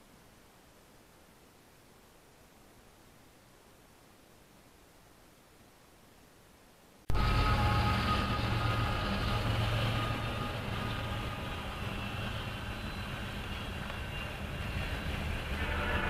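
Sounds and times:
diesel locomotives rumbling: 7.1 - 16.0
rail and wheel noise: 7.1 - 16.0.

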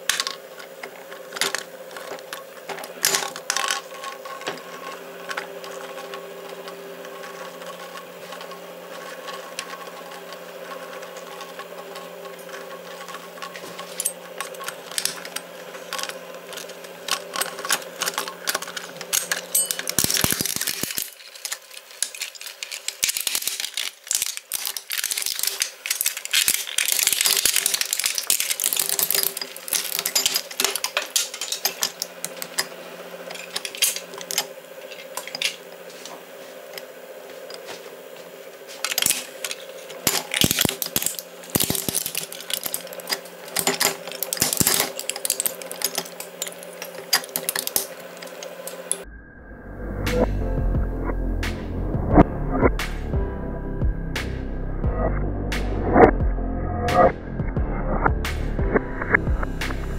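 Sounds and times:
shredder crunching plastic: 0.0 - 35.8, 38.8 - 49.0
steady motor hum: 0.0 - 59.9.

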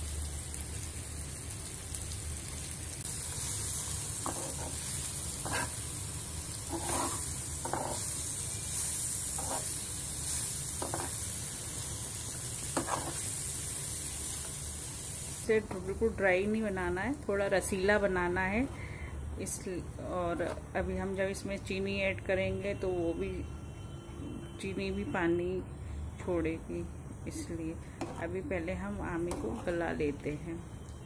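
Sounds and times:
mango slices sizzling in oil: 0.0 - 18.6
ladle scraping pan: 6.7 - 8.0.

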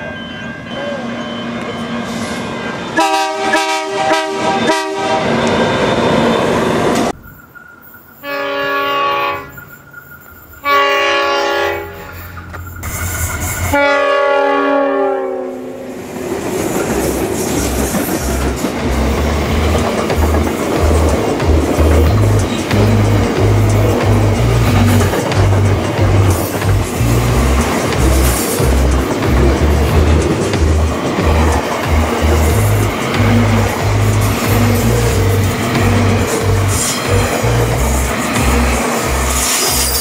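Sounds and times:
locomotive horn blasts: 3.0 - 5.6, 8.2 - 9.6, 10.6 - 12.4, 13.7 - 15.9
wagons clattering over rail joints: 16.4 - 40.0.

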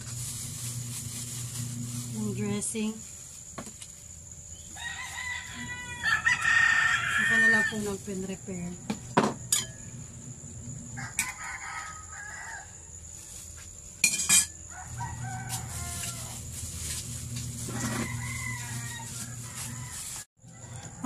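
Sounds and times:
rooster crowing: 4.6 - 8.0, 10.9 - 13.3, 14.6 - 16.5, 17.6 - 21.0
steady low hum: 7.1 - 11.3.

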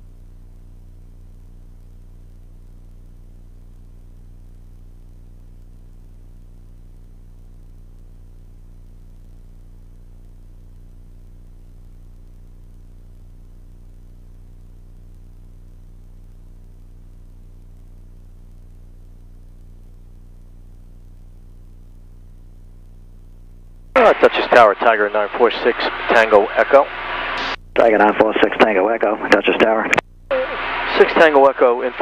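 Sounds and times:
light aircraft engine drone: 24.0 - 32.0.

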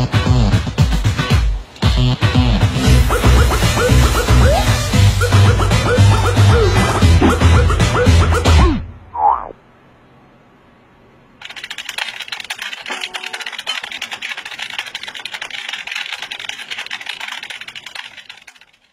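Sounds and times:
computer keyboard typing: 11.4 - 18.9.

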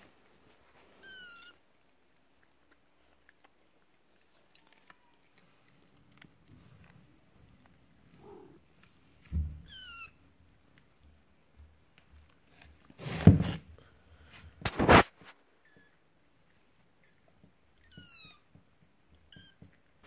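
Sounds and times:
kitten mewing: 8.2 - 8.6.

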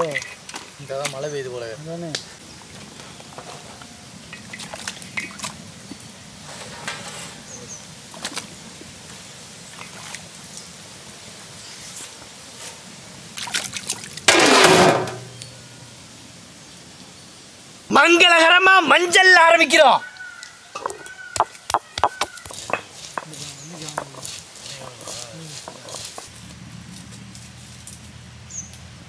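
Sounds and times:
water trickling and dripping: 0.0 - 2.9, 3.8 - 6.4, 7.8 - 14.3
rush of water: 2.3 - 22.8.

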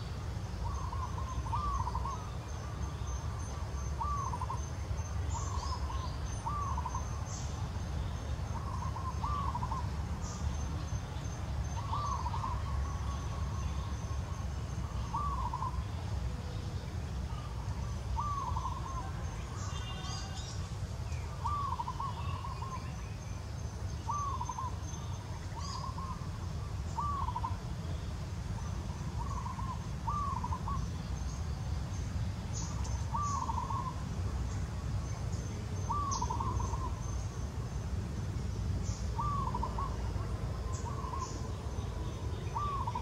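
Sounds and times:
bird whistling calls: 33.1 - 34.0, 35.9 - 37.0, 39.2 - 40.0, 42.4 - 43.0.

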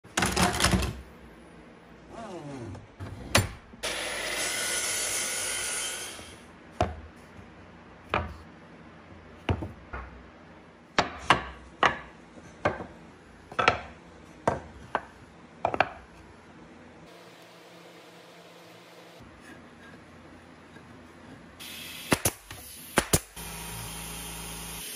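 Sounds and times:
wooden pieces knocking on bench: 13.5 - 16.0.

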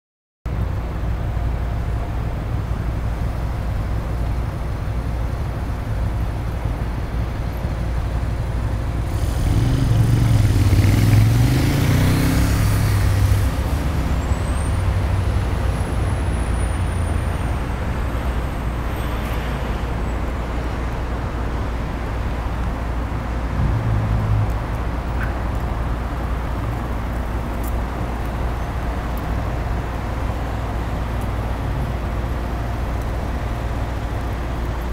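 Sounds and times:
road traffic rumble: 0.5 - 34.9
louder vehicle passing: 9.0 - 17.3, 23.5 - 26.9.

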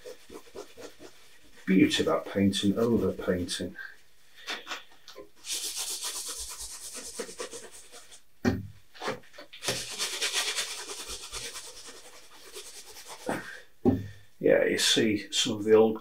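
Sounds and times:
cloth rag rubbing canvas: 0.0 - 3.4, 5.4 - 8.2, 9.6 - 13.4.

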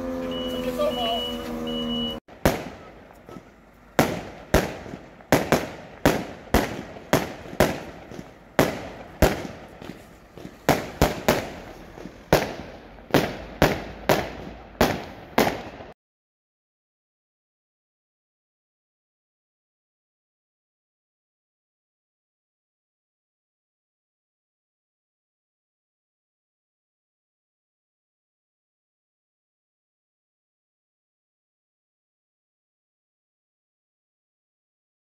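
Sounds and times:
fire engine horns chord: 0.0 - 4.3
fireworks bangs with echo: 2.3 - 16.0.

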